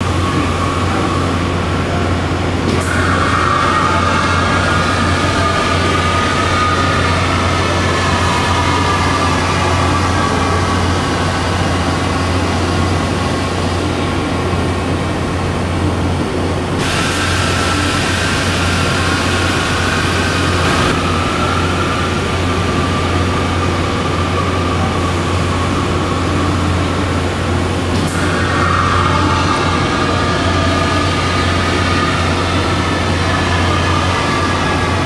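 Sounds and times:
scissor lift drive humming: 0.0 - 35.0
hiss: 16.8 - 35.0.

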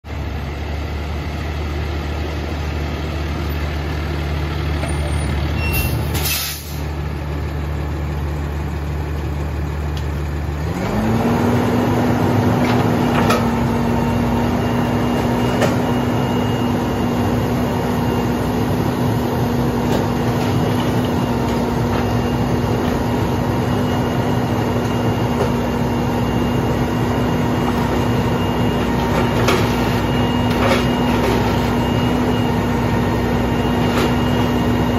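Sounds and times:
diesel engine idling and revving: 0.0 - 34.9
short hiss: 6.1 - 6.9.

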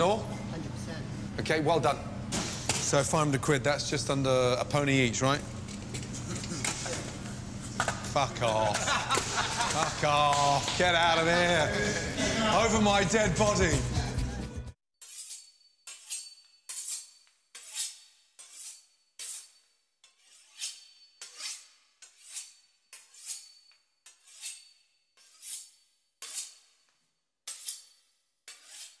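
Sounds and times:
knife sawing through crisp pastry: 15.0 - 26.8, 27.5 - 29.0.

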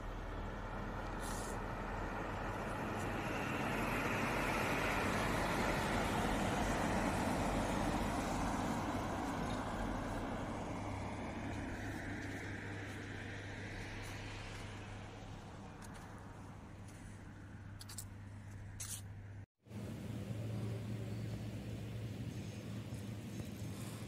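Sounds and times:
vehicle passing: 0.0 - 19.0.

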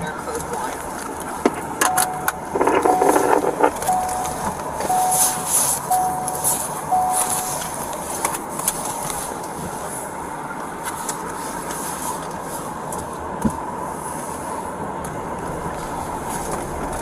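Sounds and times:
rustling noise: 0.7 - 10.1
clicks: 1.5 - 8.4
dashboard warning chime beeping: 1.7 - 8.2.

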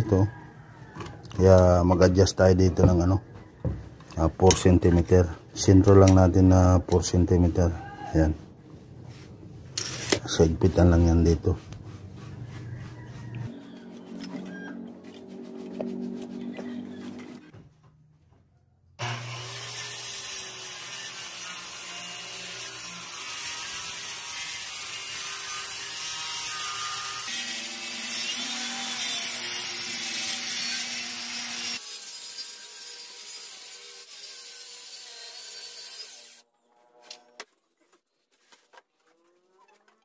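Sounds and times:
circular saw cutting wood: 12.6 - 17.5, 19.0 - 37.4.

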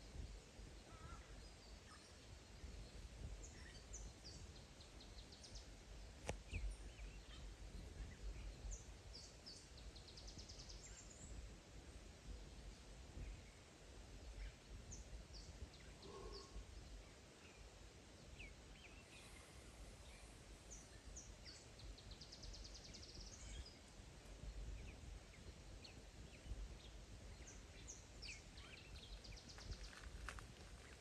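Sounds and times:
faint low rumble: 0.0 - 31.0.

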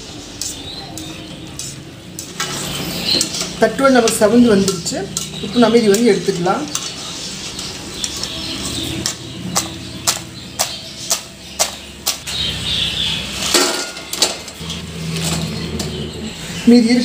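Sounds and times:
metal clatters: 13.5 - 16.0.

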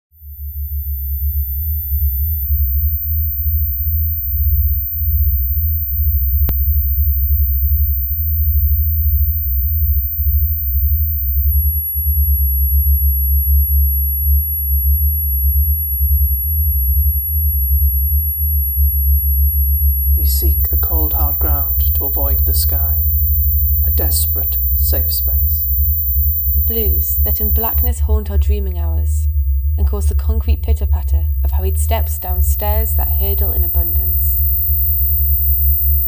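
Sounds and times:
low throbbing electronic drone: 0.2 - 36.0
thin high steady tone: 20.2 - 36.0.

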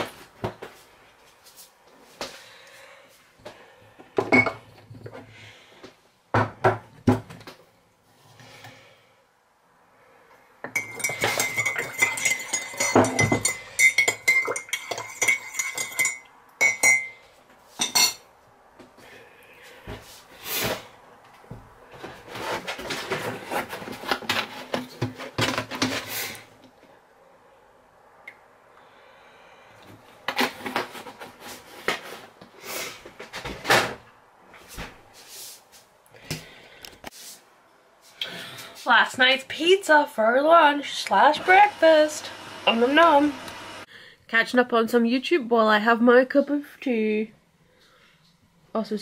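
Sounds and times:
mug and spoon clinking: 10.7 - 17.2, 17.8 - 18.2.

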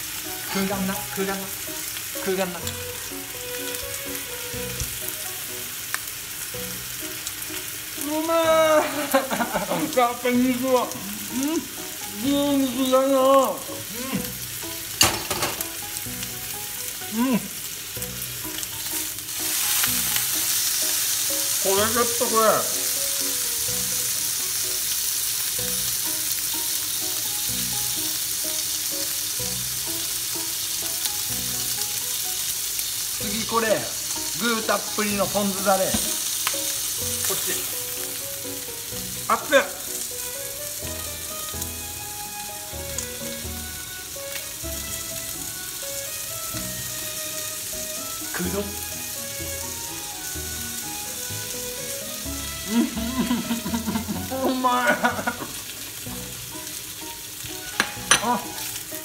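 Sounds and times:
beef sizzling in a frying pan: 0.0 - 59.0
light background music: 0.0 - 59.0.

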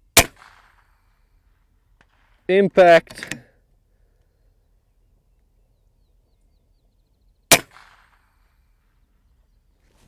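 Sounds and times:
bird chirps and trill: 4.3 - 7.6.

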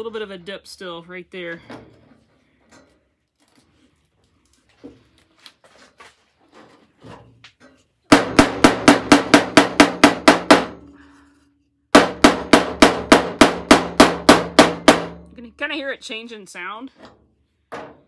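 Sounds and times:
hammer tapping on metal panel: 8.1 - 10.8, 12.0 - 15.2.

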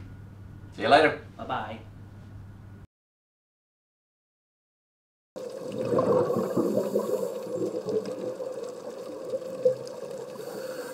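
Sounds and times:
bubbling and crackling: 5.4 - 10.9.

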